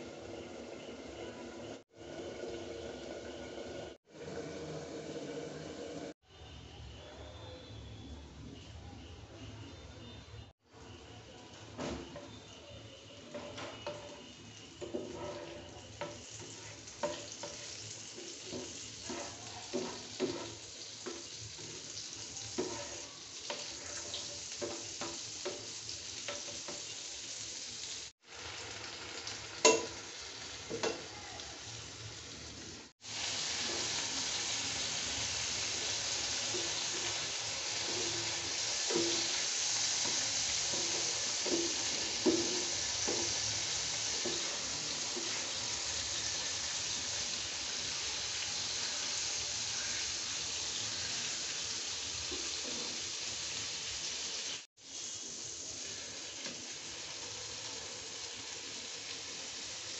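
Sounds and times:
butter sizzling in a frying pan: 10.7 - 59.9
plastic spatula scraping a pan: 13.3 - 15.8.

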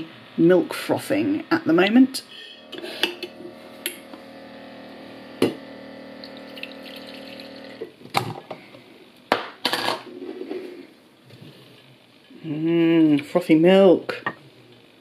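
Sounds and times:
electric milk frother humming: 0.0 - 8.8
coffee pouring into a mug: 6.2 - 7.9.

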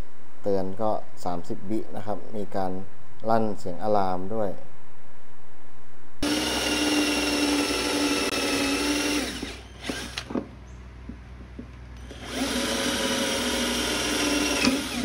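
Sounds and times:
electric drill whining: 6.2 - 10.4, 12.0 - 15.0.

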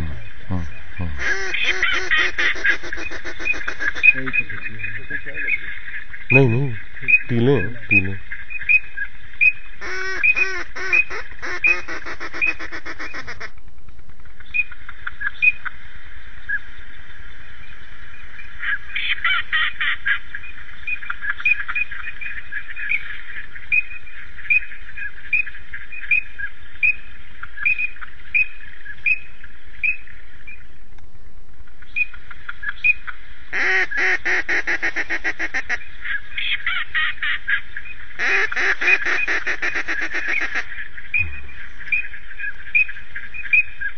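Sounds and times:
ducks quacking: 0.0 - 9.0, 9.8 - 13.6, 32.0 - 43.9.

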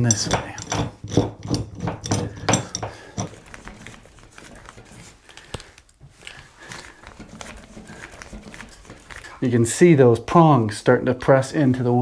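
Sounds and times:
brace bar clicking and knocking: 0.0 - 3.4.

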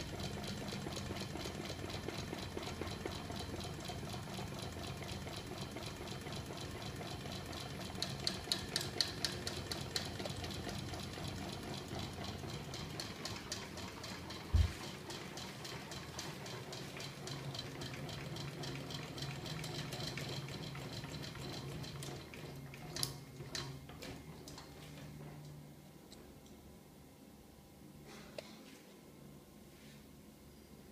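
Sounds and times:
fast regular clicking: 7.9 - 10.8.

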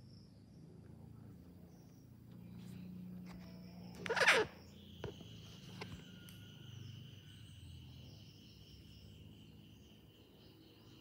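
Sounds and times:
insects trilling: 2.8 - 11.0.

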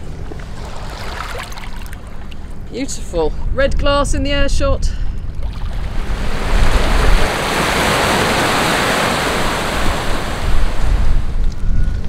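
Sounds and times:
wind buffeting microphone: 2.5 - 12.0
waves washing over stony shore: 5.8 - 11.0.

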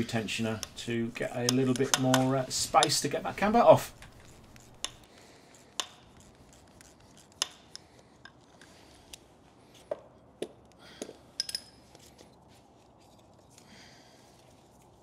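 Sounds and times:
metal tools clicking and clinking: 11.3 - 12.3.

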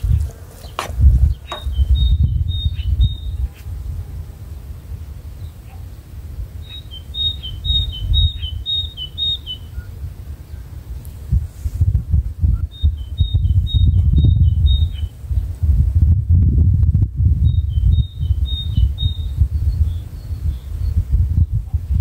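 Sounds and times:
songbird singing: 0.0 - 11.3, 12.4 - 15.7, 17.2 - 21.8.

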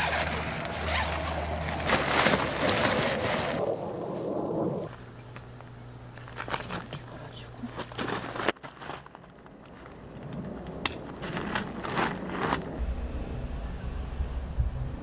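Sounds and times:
fabric rustling and scraping: 0.0 - 3.6, 11.2 - 12.8.

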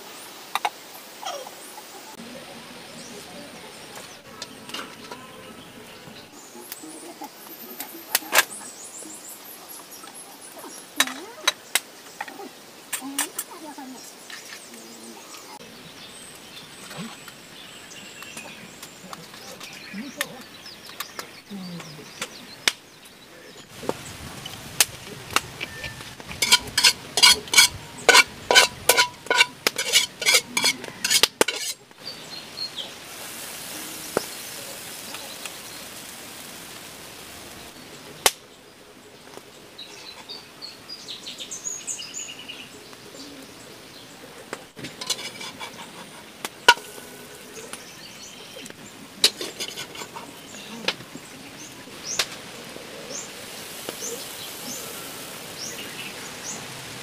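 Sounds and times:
utensil clinking in a bowl: 25.6 - 31.8
utensil scraping a bowl: 25.6 - 31.8, 44.9 - 47.4, 49.2 - 50.6.

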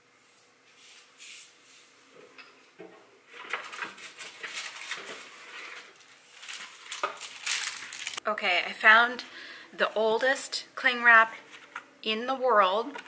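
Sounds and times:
hands rummaging in a drawer: 3.4 - 8.2.

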